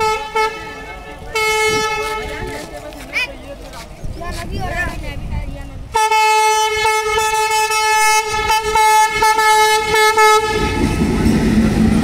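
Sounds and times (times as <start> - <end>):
locomotive horn: 0.0 - 2.7, 5.9 - 11.4
locomotive engine rumbling: 0.0 - 12.0.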